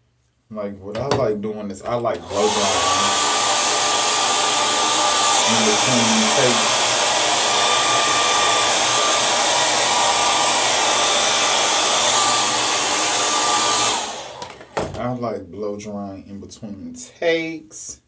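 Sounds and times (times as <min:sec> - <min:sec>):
hair dryer blowing: 0:02.1 - 0:15.0.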